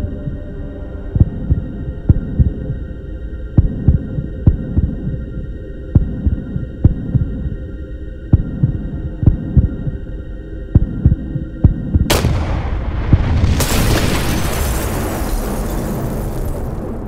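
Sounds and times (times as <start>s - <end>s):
low drone: 0.0s - 14.2s
slow heartbeat: 1.1s - 10.1s, 10.7s - 12.1s
gunshot: 12.1s - 14.8s
glass shattering: 13.6s - 17.0s.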